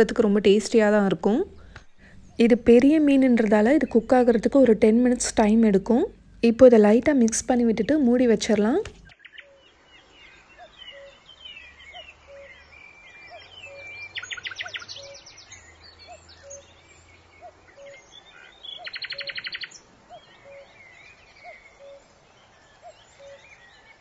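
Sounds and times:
birds chirping and calling: 0:07.4 - 0:24.0.

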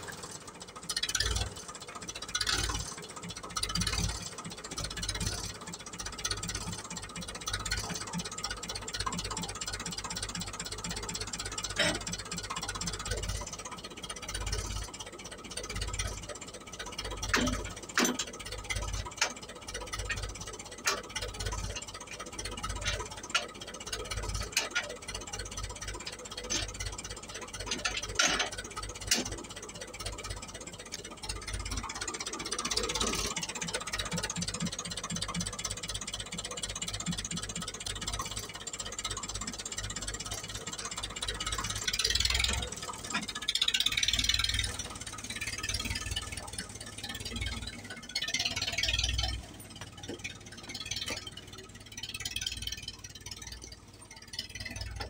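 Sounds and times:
diesel engine idling unevenly: 0:00.0 - 0:55.0
metal hitch clanks: 0:17.1 - 0:21.5, 0:26.4 - 0:29.5.

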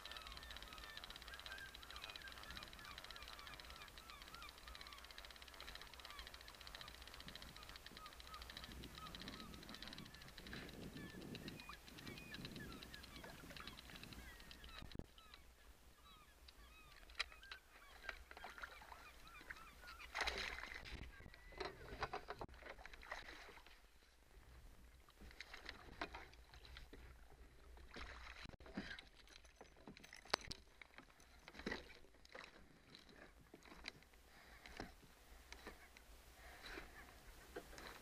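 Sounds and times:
short high wavering calls: 0:00.0 - 0:15.4.

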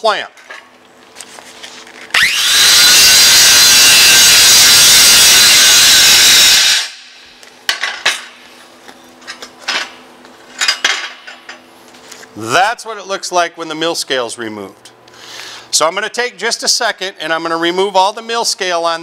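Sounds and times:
angle grinder grinding steel: 0:02.2 - 0:07.0.

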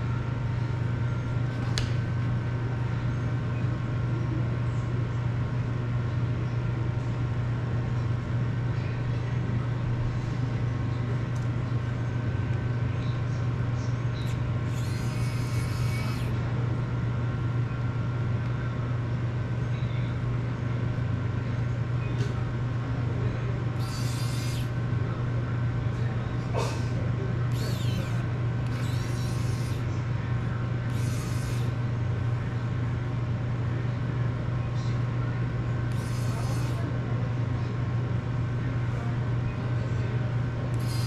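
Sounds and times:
steady low hum: 0:00.0 - 0:41.0
solder sizzling: 0:14.7 - 0:16.3, 0:23.8 - 0:24.7, 0:27.5 - 0:29.8, 0:30.9 - 0:31.7, 0:35.9 - 0:36.8, 0:40.8 - 0:41.0.

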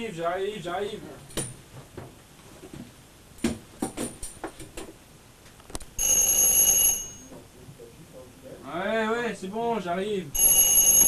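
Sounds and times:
electric doorbell ringing: 0:06.0 - 0:07.3, 0:10.4 - 0:11.0.

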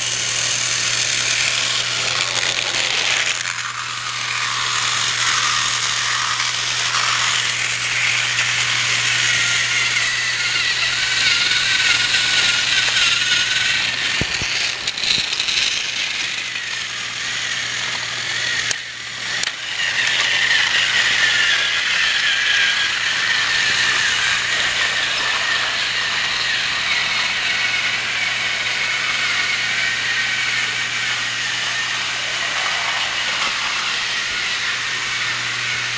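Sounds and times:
toy train motor whirring: 0:00.0 - 0:35.9.

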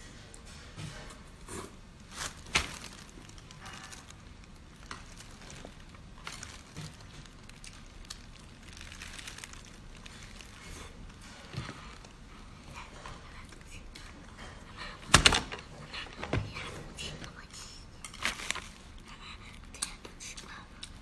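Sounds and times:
person chewing food: 0:02.4 - 0:14.7.

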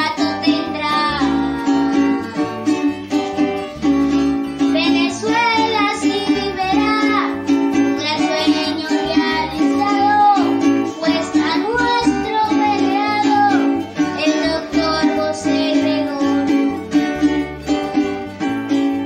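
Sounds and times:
boy singing: 0:00.0 - 0:03.0, 0:04.7 - 0:16.8
strummed string instrument: 0:00.0 - 0:19.0.

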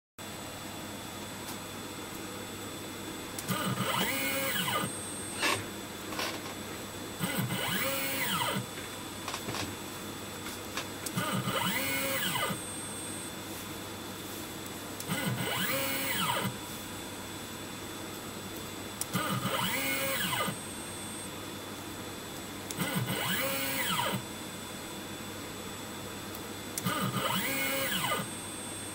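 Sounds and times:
steady hum: 0:00.2 - 0:28.9
drive motor whine: 0:03.4 - 0:13.7, 0:14.6 - 0:17.0, 0:19.0 - 0:24.4, 0:26.3 - 0:28.9.

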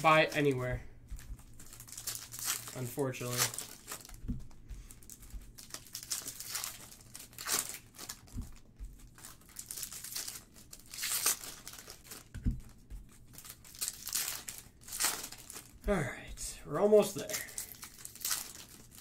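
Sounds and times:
cards rustling: 0:00.0 - 0:19.0
foil wrappers crinkling: 0:00.0 - 0:19.0.

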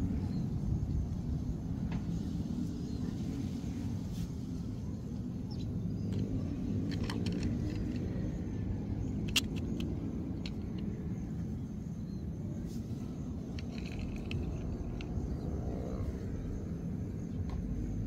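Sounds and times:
low outdoor rumble: 0:00.0 - 0:18.0
light plastic clicks: 0:06.0 - 0:11.1, 0:13.5 - 0:15.3.

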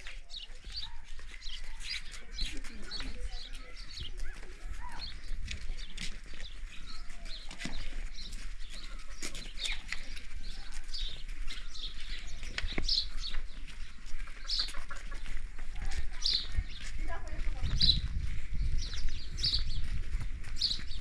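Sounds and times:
birds chirping: 0:00.0 - 0:21.0
footsteps on dry dirt: 0:00.0 - 0:21.0.

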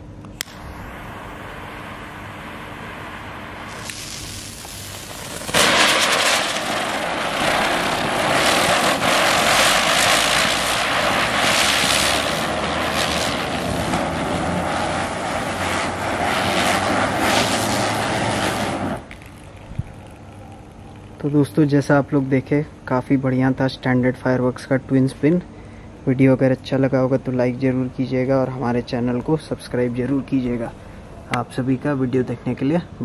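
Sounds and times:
faint steady whine: 0:00.0 - 0:33.0
firework spinner hissing and whirring: 0:00.4 - 0:21.2.

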